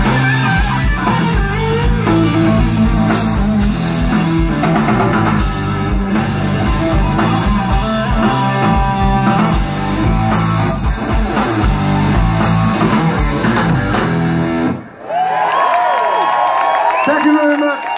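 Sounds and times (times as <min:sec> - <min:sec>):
live rock band playing: 0:00.0 - 0:15.0
crowd cheering: 0:14.7 - 0:17.9.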